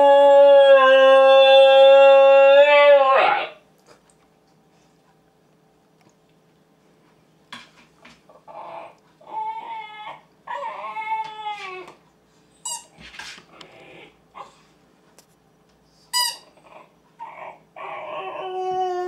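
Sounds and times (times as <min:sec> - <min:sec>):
puppy howling: 0:00.0 - 0:03.6, 0:08.4 - 0:12.0, 0:16.7 - 0:19.0
puppy yelping: 0:08.3 - 0:12.0, 0:16.3 - 0:18.5.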